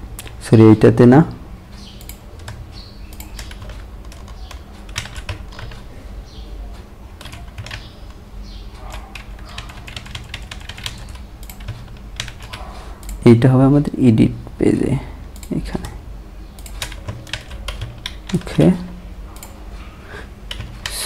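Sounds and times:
keyboard keys clicking: 1.9s - 5.9s, 7.2s - 13.2s, 16.6s - 18.8s, 20.4s - 21.0s.

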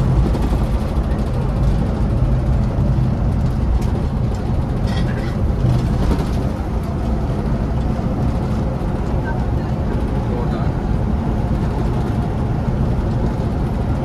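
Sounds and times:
bus engine drone: 0.0s - 14.0s
road rumble: 0.0s - 14.0s.

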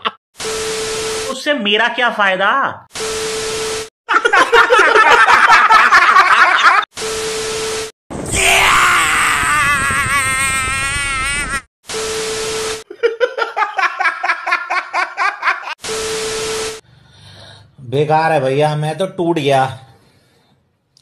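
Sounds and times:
man laughing hard: 4.1s - 6.8s, 12.9s - 15.8s
men laughing loudly: 4.1s - 6.9s, 12.9s - 15.8s
static burst: 11.9s - 12.8s, 15.8s - 16.8s.

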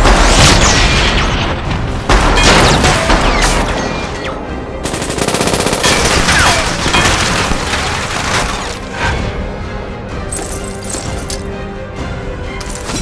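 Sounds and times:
heavy gunfire: 4.8s - 8.2s.

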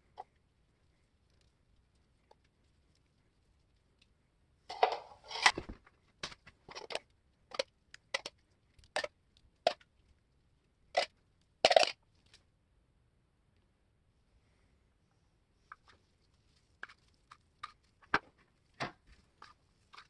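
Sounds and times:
metal spoon scraping and dabbing: 16.8s - 17.9s, 19.3s - 20.0s.

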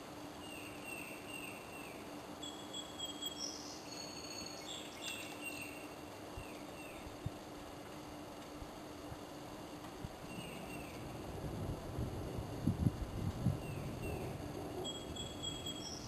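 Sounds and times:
steady low hum: 0.0s - 16.0s
thin high whistles: 14.8s - 16.0s.

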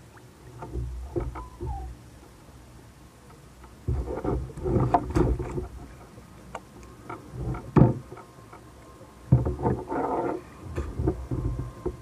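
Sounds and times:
water splashing: 0.0s - 2.6s.

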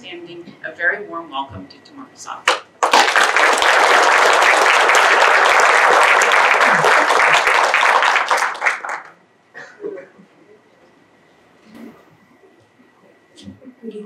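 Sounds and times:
audience applauding: 2.8s - 9.2s.

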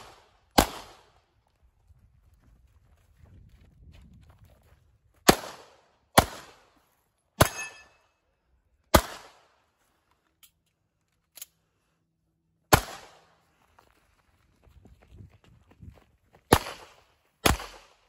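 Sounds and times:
pistol shots with echo: 0.0s - 1.2s, 5.3s - 6.7s, 7.4s - 8.0s, 8.9s - 9.5s, 12.7s - 13.3s, 16.5s - 18.0s.

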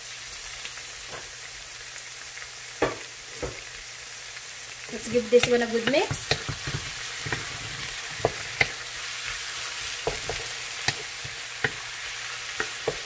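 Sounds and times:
vegetables sizzling in oil: 0.0s - 13.0s
utensil scraping pan: 4.9s - 13.0s.

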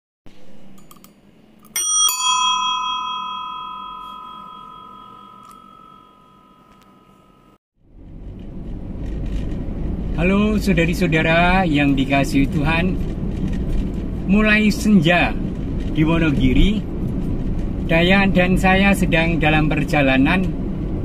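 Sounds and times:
small bell ringing: 1.6s - 7.6s
vehicle road noise: 6.2s - 21.0s.

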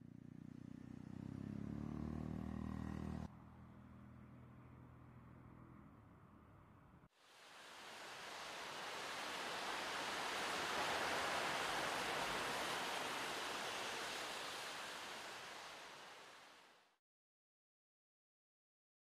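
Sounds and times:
steady rushing noise: 7.3s - 16.8s.

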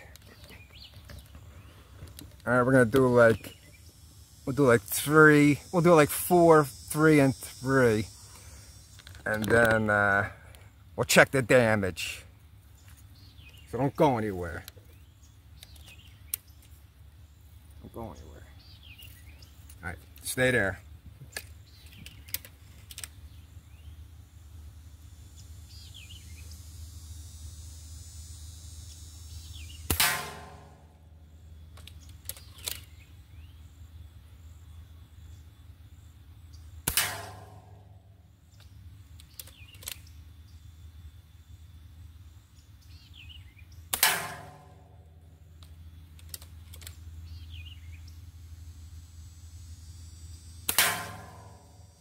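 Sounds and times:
faint bird chirps: 0.0s - 9.4s
low outdoor background noise: 0.0s - 52.0s
faint sharp clicks: 15.6s - 16.8s, 31.7s - 32.9s, 38.5s - 40.1s
sharp clicks: 15.6s - 16.8s, 21.3s - 23.2s, 31.7s - 33.0s, 36.8s - 37.9s, 38.5s - 40.2s, 45.6s - 47.1s
air rifle firing: 29.8s - 31.0s, 36.8s - 37.9s, 43.9s - 45.0s, 50.6s - 51.8s
steel target ringing: 29.9s - 30.9s, 36.9s - 37.9s, 44.0s - 45.0s, 50.7s - 51.8s.

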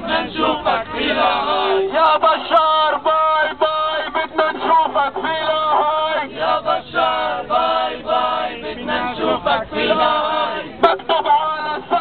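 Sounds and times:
protesters chanting: 0.0s - 12.0s
man calling through megaphone: 1.4s - 6.7s, 8.6s - 12.0s.

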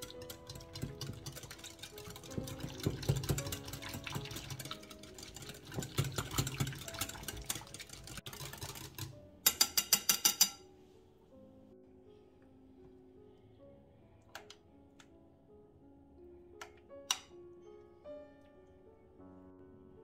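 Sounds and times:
whisk clattering against bowl: 0.0s - 10.6s
soft background music: 0.0s - 20.0s.

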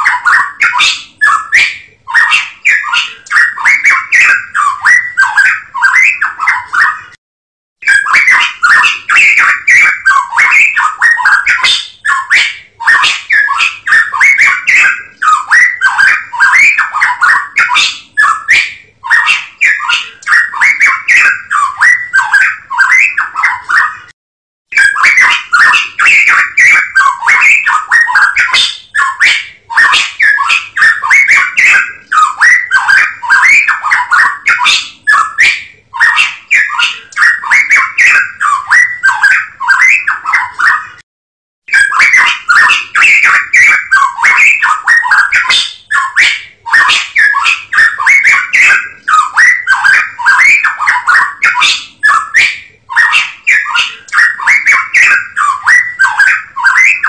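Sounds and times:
songbird chattering song: 0.0s - 7.1s, 7.8s - 24.1s, 24.8s - 41.0s, 41.7s - 57.0s.

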